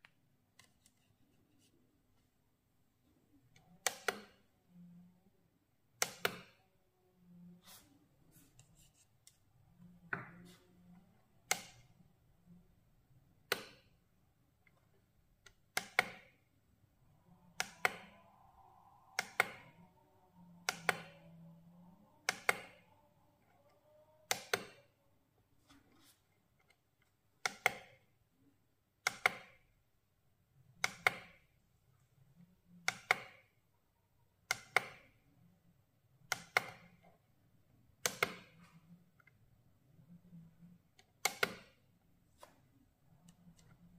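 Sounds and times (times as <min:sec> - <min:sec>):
faint low hum: 0:16.4 - 0:27.3, 0:36.9 - 0:41.2.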